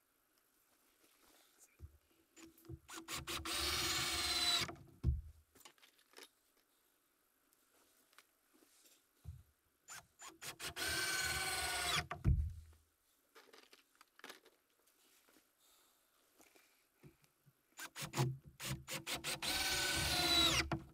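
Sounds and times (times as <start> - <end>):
cordless drill whining: 2.9 - 4.8, 9.9 - 12.2, 17.8 - 20.9.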